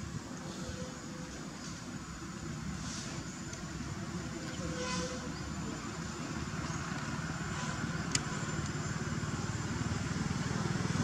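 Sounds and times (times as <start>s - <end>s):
vehicle engine rumbling: 0.0s - 11.0s.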